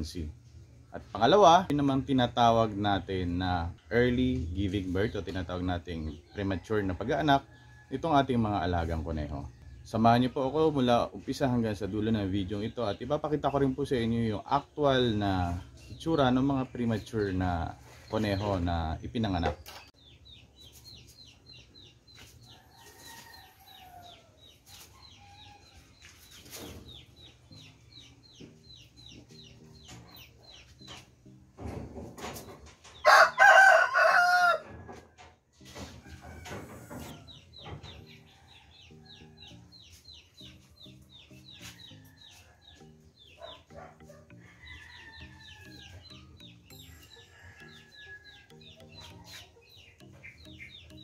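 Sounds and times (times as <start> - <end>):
rooster crowing: 33.0 - 34.7
rapid high chirping: 36.9 - 51.0.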